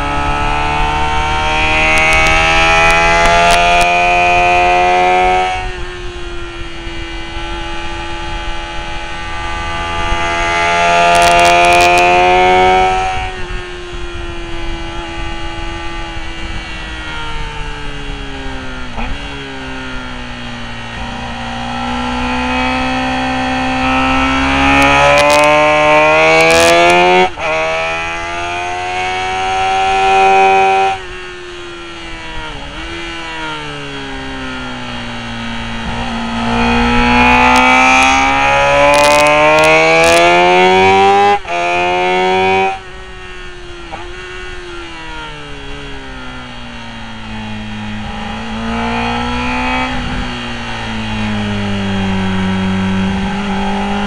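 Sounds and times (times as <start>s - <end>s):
motorcycle engine revving: 0.0s - 54.0s
wind rush: 47.0s - 54.0s.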